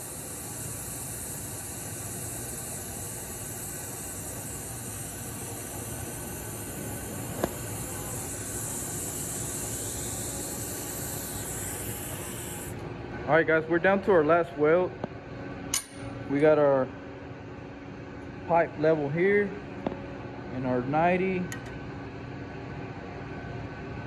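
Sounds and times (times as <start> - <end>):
welding arc hissing: 0.0 - 12.8.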